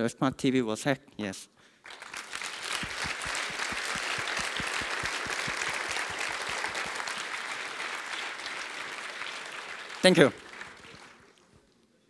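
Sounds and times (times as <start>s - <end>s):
audience applauding: 1.8s - 11.6s
nearby hands clapping: 1.9s - 11.5s.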